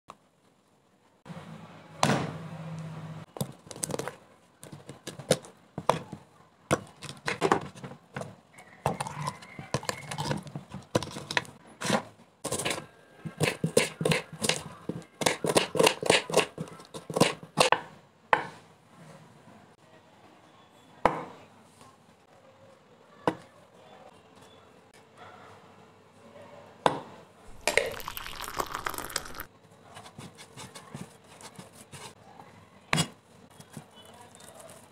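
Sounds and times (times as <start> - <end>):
knife chopping on wooden board: 10.9 - 18.6.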